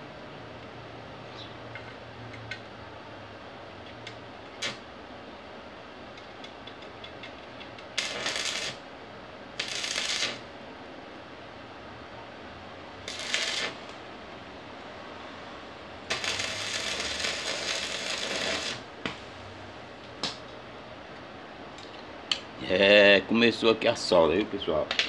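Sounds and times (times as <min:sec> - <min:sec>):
welding arc crackling: 0:04.5 - 0:04.9, 0:07.8 - 0:08.8, 0:09.5 - 0:10.5, 0:13.0 - 0:14.1, 0:16.0 - 0:19.5.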